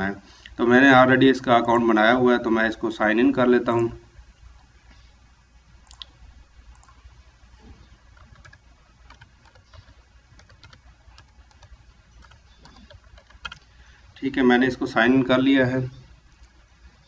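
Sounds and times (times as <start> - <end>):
low steady hum: 0.0 - 17.0
computer keyboard keystrokes: 8.2 - 13.7.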